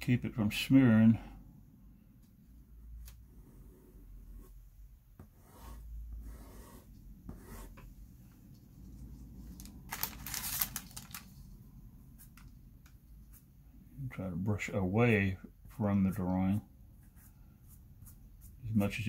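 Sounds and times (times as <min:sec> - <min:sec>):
paintbrush brushing paper: 0:17.0 - 0:19.0.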